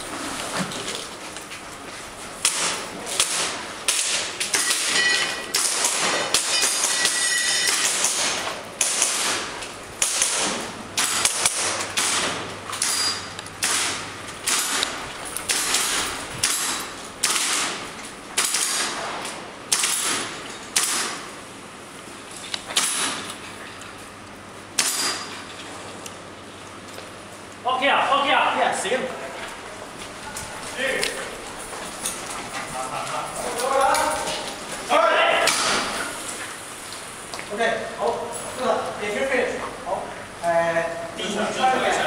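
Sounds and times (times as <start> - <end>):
airsoft gun shots echoing: 2.4 - 13.0, 13.6 - 19.0, 19.7 - 21.3, 35.4 - 36.0.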